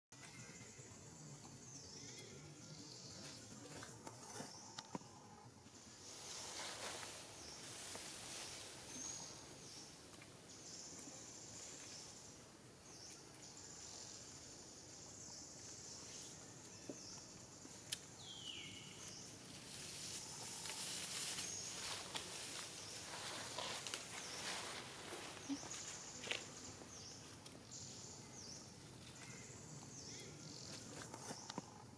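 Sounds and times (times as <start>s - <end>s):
insects buzzing drone: 13.5s - 31.9s.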